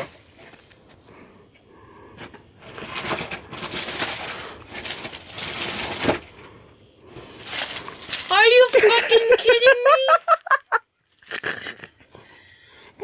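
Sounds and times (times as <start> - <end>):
plastic bag crinkling: 2.6 - 6.5, 7.2 - 10.4.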